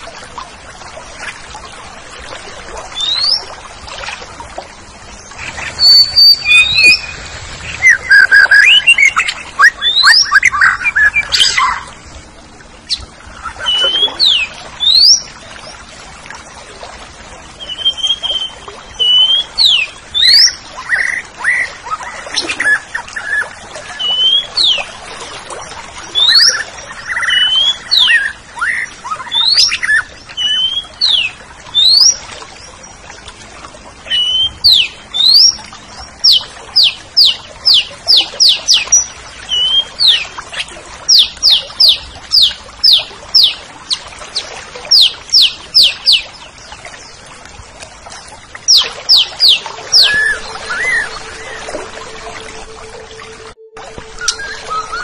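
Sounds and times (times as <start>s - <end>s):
thrush singing sharp whistles: 5.8s - 7.2s, 7.8s - 11.7s, 48.7s - 55.0s.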